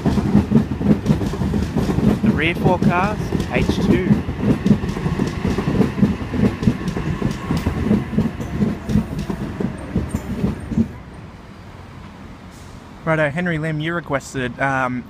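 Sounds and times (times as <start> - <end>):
train wheels clattering over joints: 0.0 - 11.0
train rumble: 0.0 - 13.3.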